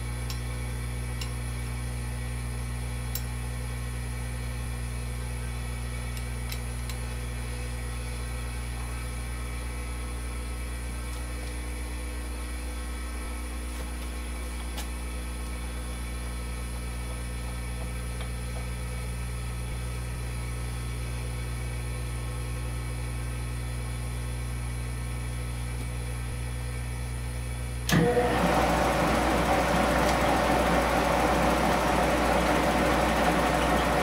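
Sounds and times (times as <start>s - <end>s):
milling machine motor hum: 27.9s - 34.0s.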